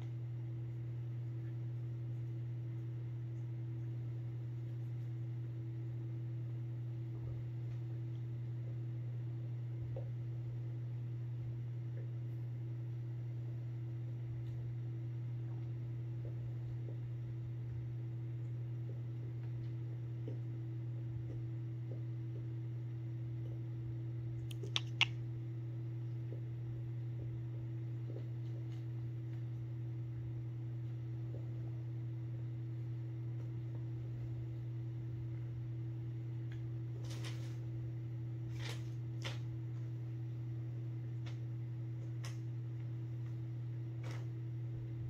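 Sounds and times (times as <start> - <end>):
low room hum: 0.0 - 45.0
sharp clicks: 24.4 - 25.2.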